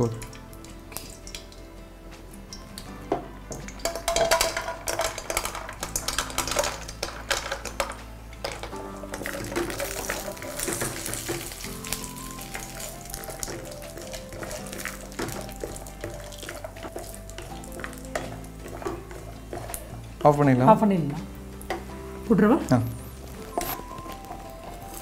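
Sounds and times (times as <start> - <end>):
background music: 0.0 - 25.0
frying sizzle: 0.0 - 25.0
nuts clattering into a pan: 3.5 - 20.4.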